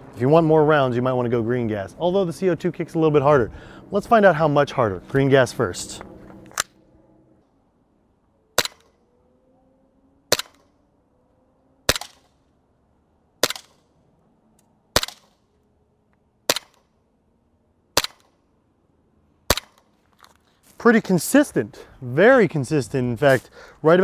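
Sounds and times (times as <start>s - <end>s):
airsoft pistol shots: 8.6s - 8.9s, 10.3s - 10.6s, 11.9s - 12.3s, 13.4s - 13.8s, 14.9s - 15.4s, 16.5s - 16.9s, 17.9s - 18.4s, 19.5s - 19.8s.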